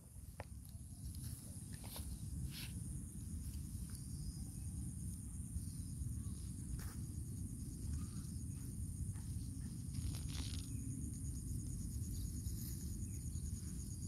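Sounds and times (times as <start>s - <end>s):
high-pitched insect chorus: 0.1s - 14.0s
rustling in grass: 9.6s - 11.0s.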